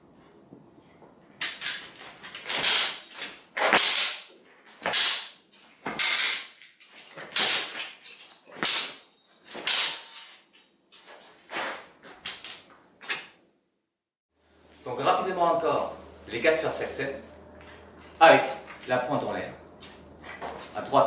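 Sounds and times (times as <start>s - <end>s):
swords clashing with ringing: 2.4s - 11.1s.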